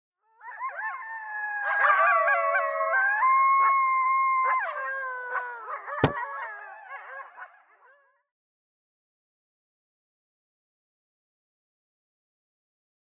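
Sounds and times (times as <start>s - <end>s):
coyotes howling and yipping: 0.2s - 8.3s.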